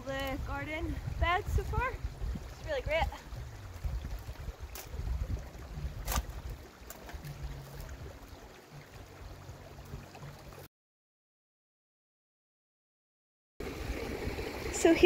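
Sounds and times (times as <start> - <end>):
wind rumble on microphone: 0.0 - 10.6.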